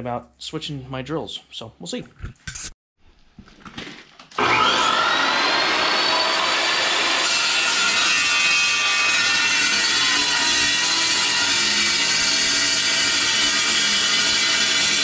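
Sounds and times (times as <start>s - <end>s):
chop saw cutting steel: 4.4s - 15.0s.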